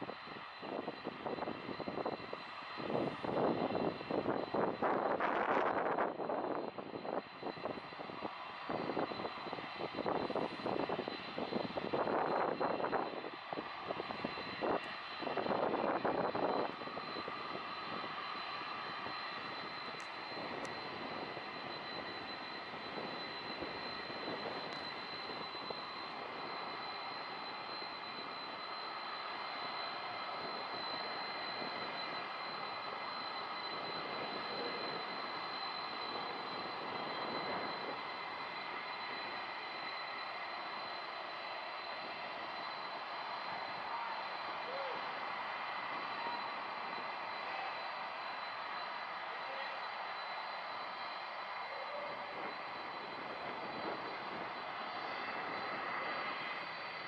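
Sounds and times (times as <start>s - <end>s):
jet engines running: 0.0s - 57.0s
gusty wind noise: 0.3s - 25.5s, 52.4s - 56.4s.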